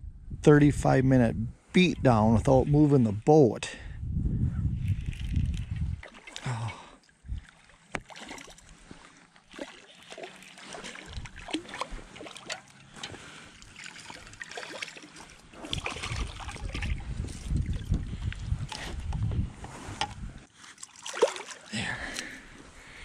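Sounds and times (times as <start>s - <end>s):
low rumble: 3.9s - 6.0s
water lapping against boat hull: 4.9s - 22.2s.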